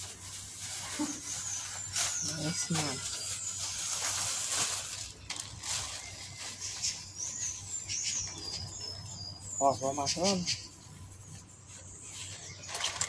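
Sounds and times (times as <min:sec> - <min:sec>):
plastic bag rustling: 0:00.0 - 0:07.7, 0:11.6 - 0:13.0.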